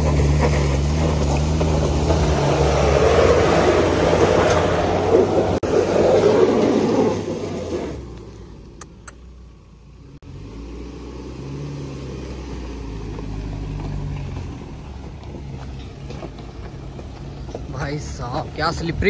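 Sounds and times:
off-road vehicle engine revving: 0:00.0 - 0:19.0
tyres on stones: 0:13.0 - 0:19.0.

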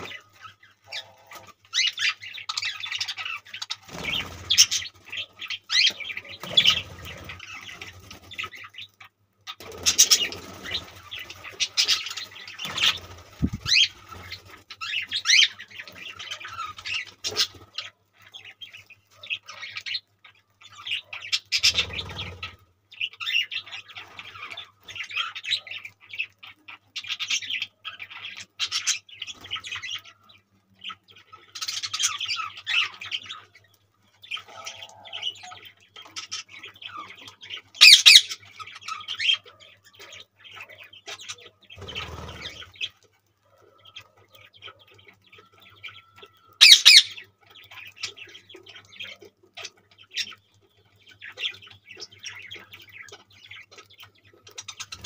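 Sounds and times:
loud bird squawk: 0:00.0 - 0:08.5, 0:20.8 - 0:25.8, 0:34.3 - 0:37.0, 0:37.8 - 0:42.9, 0:46.0 - 0:47.3
budgerigars chattering and chirping: 0:00.0 - 0:55.0.

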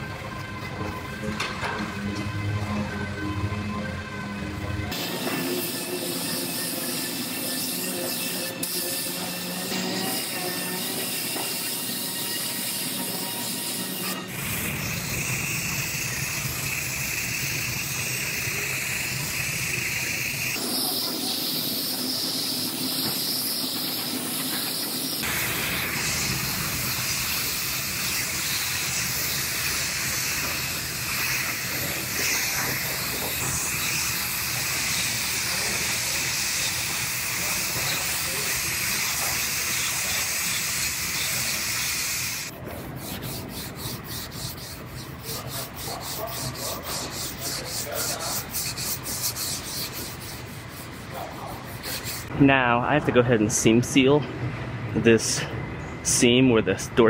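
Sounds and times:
paint spray gun hissing: 0:15.3 - 0:42.5.

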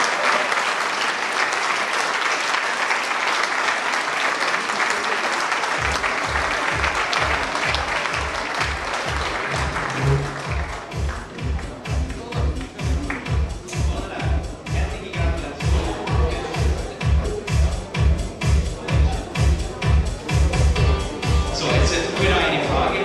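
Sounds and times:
audience applauding: 0:00.0 - 0:14.0
music with low beat: 0:05.8 - 0:23.0.

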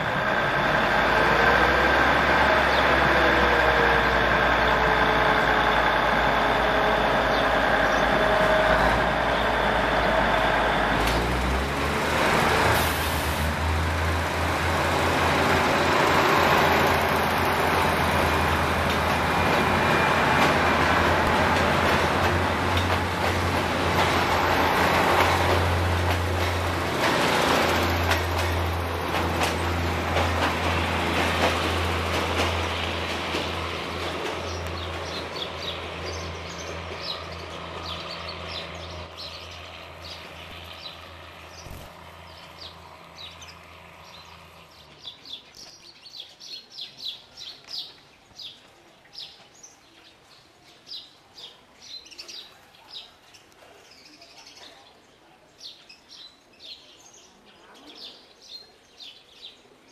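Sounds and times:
train wheels rolling: 0:00.0 - 0:44.6
diesel train engine drone: 0:00.0 - 0:45.4
small birds chirping: 0:34.2 - 0:59.9.

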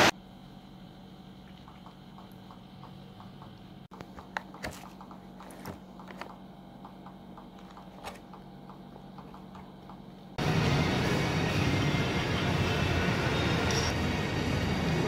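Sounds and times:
faint steady hum: 0:00.0 - 0:10.4.

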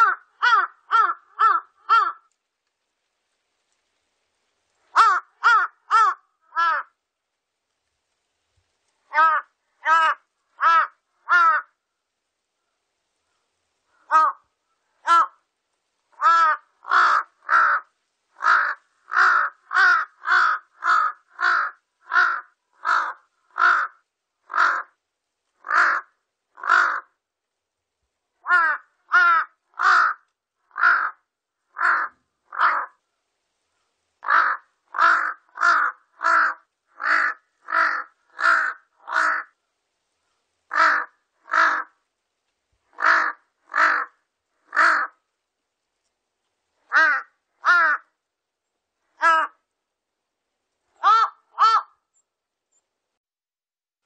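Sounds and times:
crow cawing: 0:00.0 - 0:02.3, 0:04.9 - 0:07.0, 0:09.1 - 0:11.8, 0:14.0 - 0:15.4, 0:16.2 - 0:25.0, 0:25.6 - 0:27.2, 0:28.4 - 0:33.0, 0:34.2 - 0:39.6, 0:40.7 - 0:42.0, 0:42.9 - 0:45.2, 0:46.9 - 0:48.2, 0:49.2 - 0:49.6, 0:51.0 - 0:52.0.

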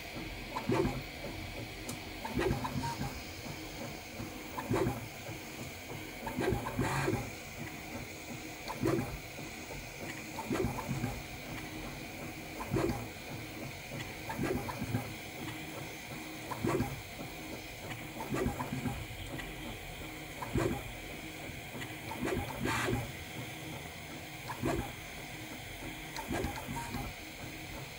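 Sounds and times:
steady fan hum: 0:00.0 - 0:27.9
stepper motors whirring: 0:06.2 - 0:07.9, 0:20.4 - 0:23.2, 0:24.3 - 0:25.4.

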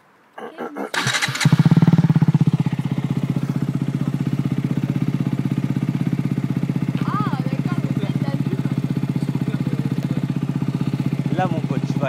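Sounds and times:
starter cranking engine: 0:00.9 - 0:02.3
motorcycle engine idling: 0:01.0 - 0:12.0.

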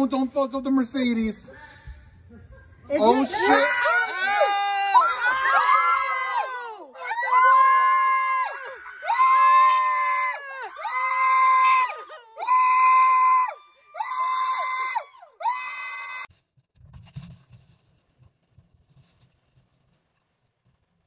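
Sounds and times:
loud high-pitched screams: 0:03.1 - 0:16.3.

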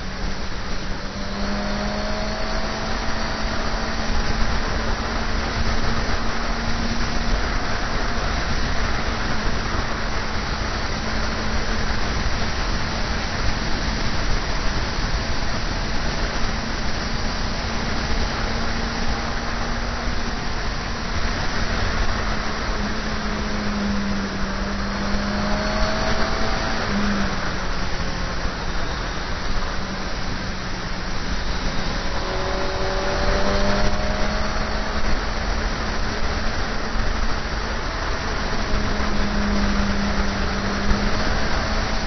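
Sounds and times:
motorcycle engine: 0:00.0 - 0:42.0
wind rushing over microphone: 0:00.0 - 0:42.0.

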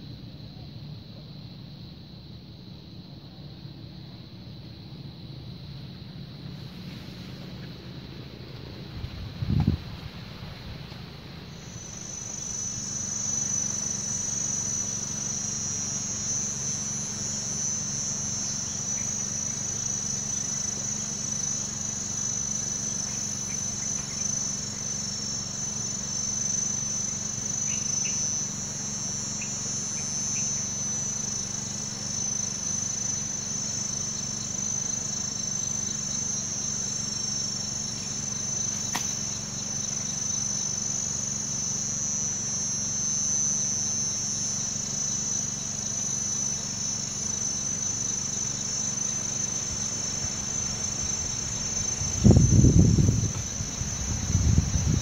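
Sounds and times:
insects chirring: 0:00.0 - 0:55.0
low steady hum: 0:00.0 - 0:55.0
sharp click: 0:38.8 - 0:39.2.

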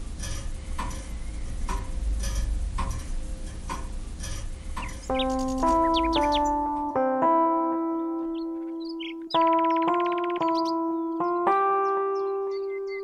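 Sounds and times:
low hum: 0:01.2 - 0:09.3
clock ticking: 0:04.8 - 0:07.0
piano music: 0:05.0 - 0:13.0.

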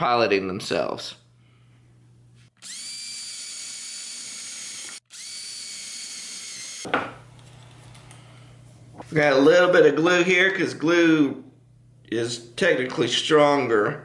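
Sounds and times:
power drill whining: 0:02.6 - 0:06.9.

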